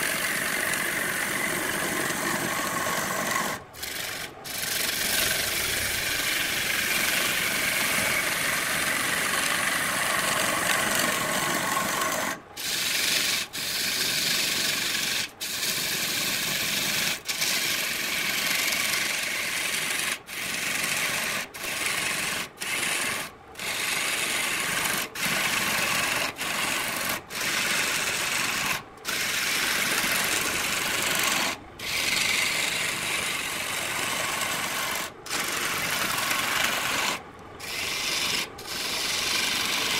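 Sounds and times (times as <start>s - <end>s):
wood lathe tool scraping: 0.0s - 39.9s.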